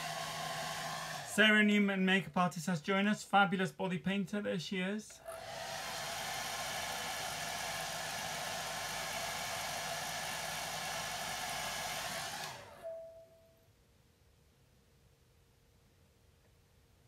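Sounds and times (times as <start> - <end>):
motor running down: 0.0 - 1.3, 5.2 - 12.9
hair dryer blowing: 0.0 - 1.4, 5.2 - 13.0.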